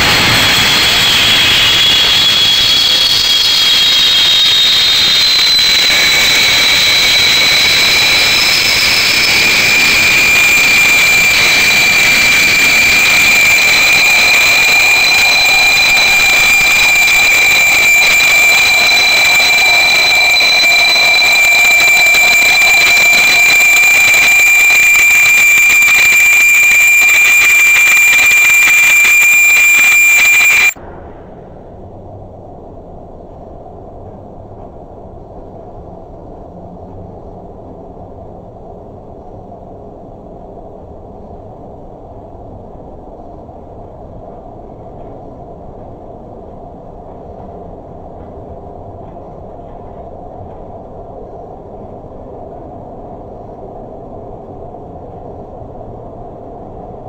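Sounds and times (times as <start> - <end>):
high steam whistle: 0.0 - 30.8.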